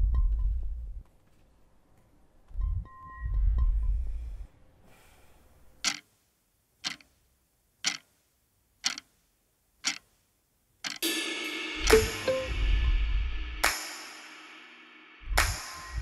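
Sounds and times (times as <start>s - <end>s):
wall clock ticking: 5.8s - 9.2s, 9.8s - 10.2s, 10.8s - 11.1s, 11.8s - 13.0s
music with sustained tones: 11.0s - 16.0s.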